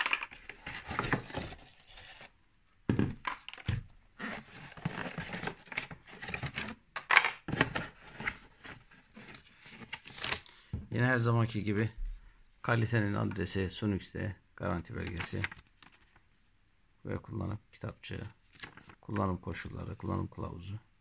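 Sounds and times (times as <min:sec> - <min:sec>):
cardboard and plastic wrap rustling: 0:00.0 - 0:02.3, 0:03.0 - 0:06.8.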